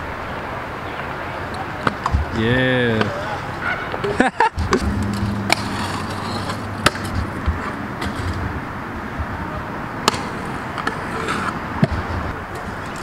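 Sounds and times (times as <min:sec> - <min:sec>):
scooter wheels rolling on concrete: 0:00.3 - 0:13.0
scooter grinding on ledge: 0:02.9 - 0:08.8, 0:10.0 - 0:13.0.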